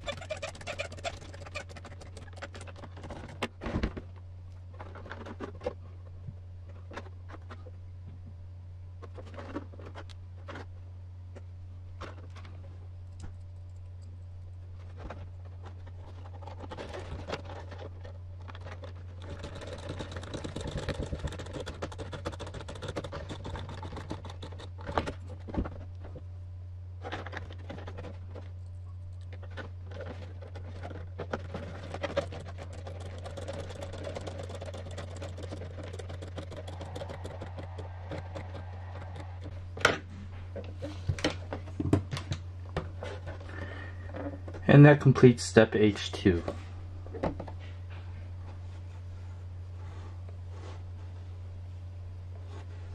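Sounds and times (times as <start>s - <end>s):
steady low hum: 0.0s - 52.9s
plastic clicks and scraping: 29.2s - 39.6s
screws driven into plastic: 32.2s - 39.5s.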